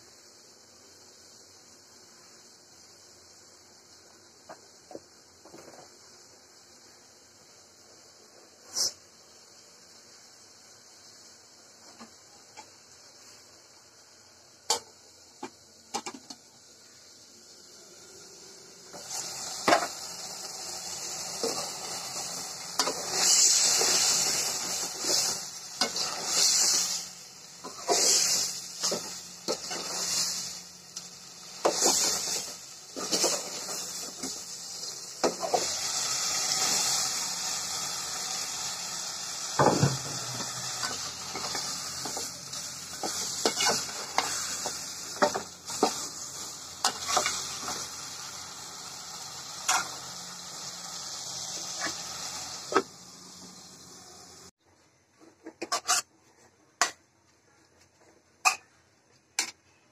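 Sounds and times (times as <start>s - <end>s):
curry sizzling in a metal pot: 0.0s - 54.5s, 55.6s - 56.1s
metal spatula scraping a pot: 43.0s - 44.6s, 46.8s - 47.8s, 55.4s - 56.1s.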